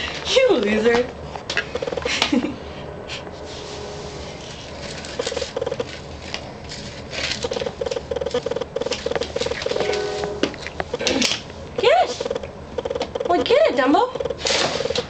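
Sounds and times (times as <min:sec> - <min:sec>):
paws scratching on phone: 0:04.4 - 0:10.0
short steady-pitch pulses: 0:05.1 - 0:05.9, 0:11.8 - 0:15.0.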